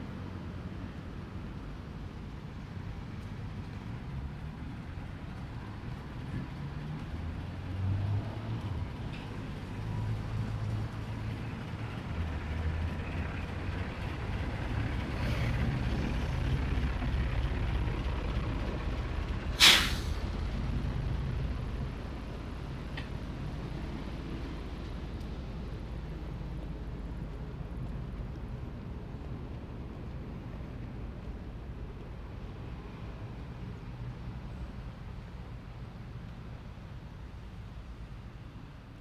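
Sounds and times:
heavy vehicle engine rumbling: 8.7s - 38.8s
air brakes hiss: 19.6s - 20.3s.

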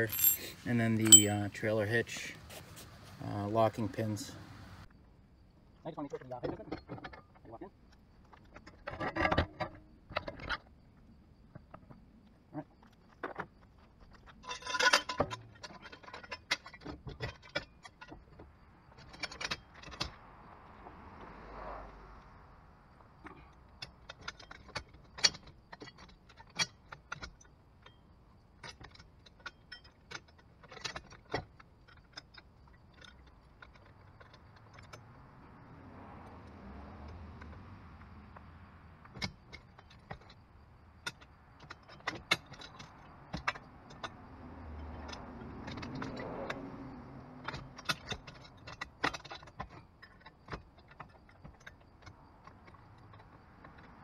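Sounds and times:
metallic clinks and clanks: 0.0s - 2.0s, 14.1s - 20.2s, 23.2s - 35.2s, 39.0s - 46.6s, 47.4s - 54.0s.

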